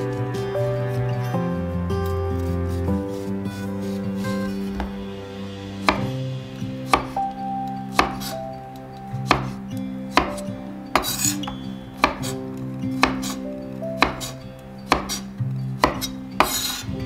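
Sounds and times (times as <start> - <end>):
soft background music: 0.0 - 17.0
knife striking cutting board: 4.4 - 5.0, 5.8 - 6.2, 6.8 - 7.2, 7.9 - 8.4, 9.2 - 11.4, 12.0 - 12.4, 13.0 - 13.4, 14.0 - 16.8.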